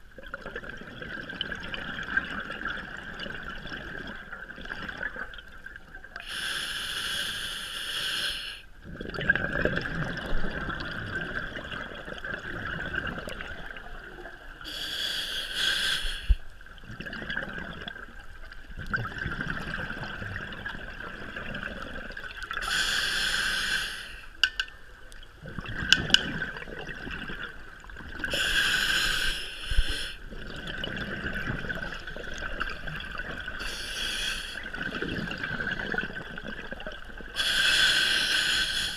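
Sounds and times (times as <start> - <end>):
regulator inhalation hiss: 6.2 - 8.7, 14.7 - 16.5, 22.6 - 24.3, 28.3 - 30.2, 33.6 - 34.6, 37.4 - 38.9
exhalation bubbles: 8.8 - 14.3, 16.8 - 18.2, 18.8 - 22.6, 25.4 - 28.6, 30.3 - 33.9, 34.5 - 37.9.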